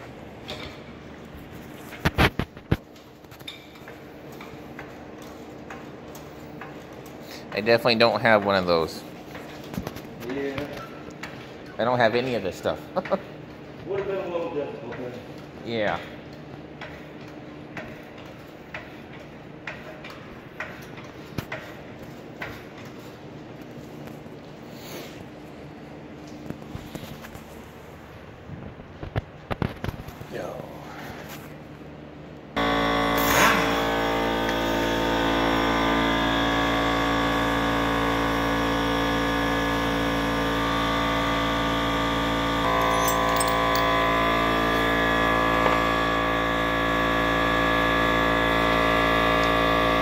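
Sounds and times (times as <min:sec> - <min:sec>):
air compressor droning: 0:32.6 - 0:50.0.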